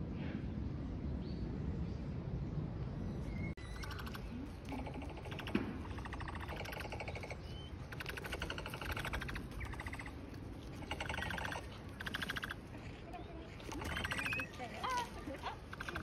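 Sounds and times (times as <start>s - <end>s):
outdoor background: 0.0s - 16.0s
rapid clicking chatter: 3.8s - 10.2s, 10.8s - 12.6s, 13.6s - 16.0s.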